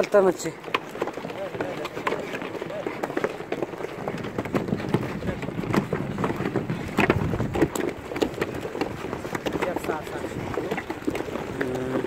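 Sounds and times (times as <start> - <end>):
close knocks clicks and scrapes: 0.6 - 11.6
wind buffeting microphone: 3.9 - 12.0.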